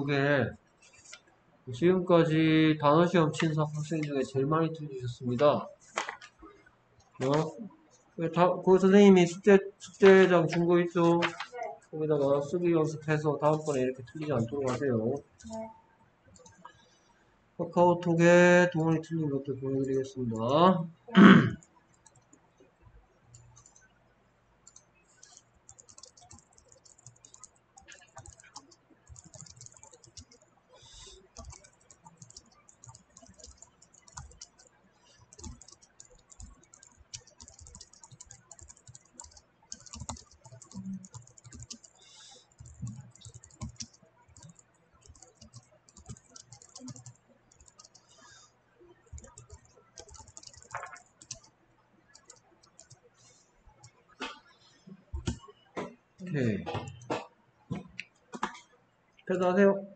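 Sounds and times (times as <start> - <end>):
keyboard typing clicks: 12.2 - 15.7, 16.4 - 16.8, 21.6 - 22.4, 23.3 - 23.9, 24.6 - 48.4, 49.0 - 53.0, 55.2 - 55.5, 56.8 - 57.2.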